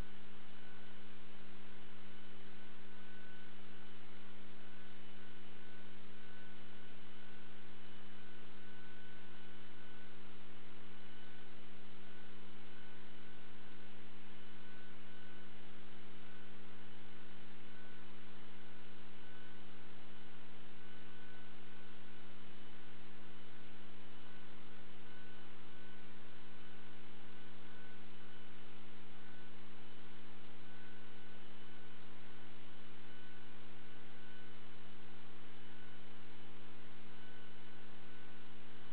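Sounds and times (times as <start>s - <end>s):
electrical mains hum: 0.0s - 38.9s
faint high-pitched tone: 0.0s - 38.9s.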